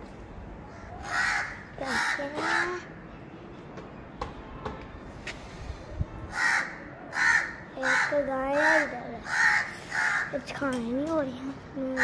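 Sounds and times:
crows cawing: 0.7s - 2.9s, 6.3s - 10.4s.

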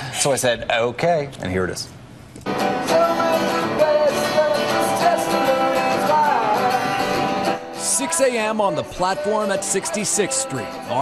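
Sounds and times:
acoustic guitar: 2.4s - 11.0s.

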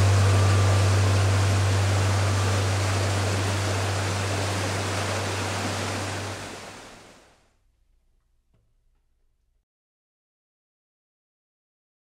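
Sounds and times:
mountain stream rushing water: 0.0s - 7.2s.

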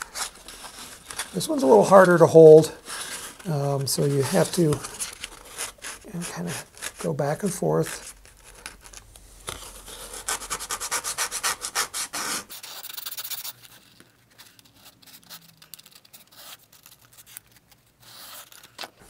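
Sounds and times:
hand sanding on sandpaper: 9.9s - 13.5s.

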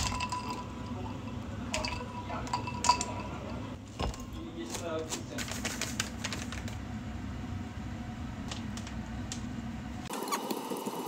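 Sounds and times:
low mechanical hum: 0.0s - 11.0s
foil packet crinkling: 4.6s - 6.8s.

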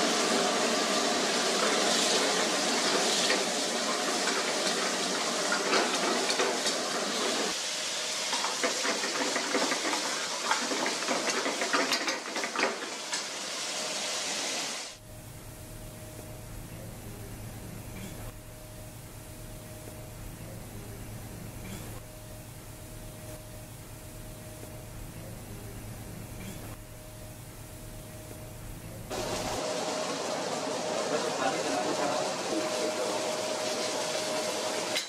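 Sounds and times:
gas burner hiss: 0.0s - 15.0s, 29.1s - 35.0s
gravy simmering and sizzling: 0.0s - 15.0s, 29.1s - 35.0s.

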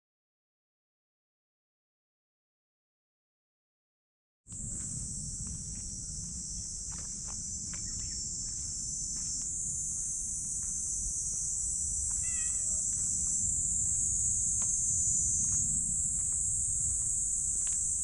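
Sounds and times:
footsteps on pavement: 4.5s - 18.0s
insects buzzing: 4.5s - 18.0s.

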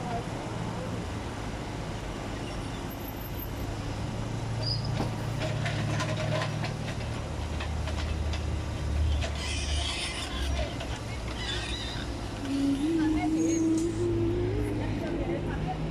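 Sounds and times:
excavator engine humming: 4.4s - 15.9s.

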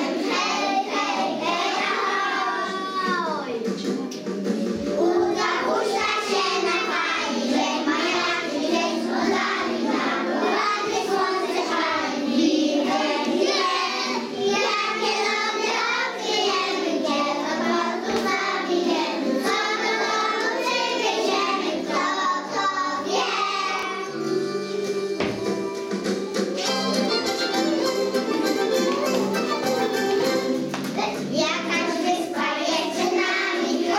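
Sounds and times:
children singing in unison: 0.0s - 3.2s, 4.6s - 24.2s, 31.4s - 33.9s
recorded backing music: 0.0s - 33.9s.

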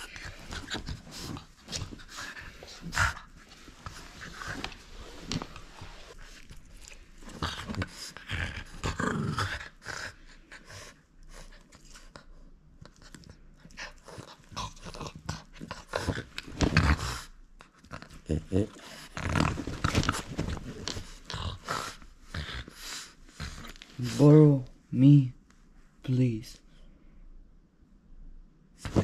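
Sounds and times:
dog panting: 0.0s - 4.8s
dog growling: 6.0s - 10.8s, 13.7s - 24.2s.

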